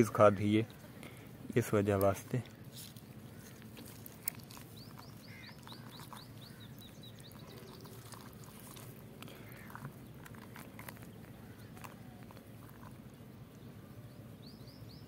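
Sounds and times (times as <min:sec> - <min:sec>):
small bird chirping: 0:02.5 - 0:13.0.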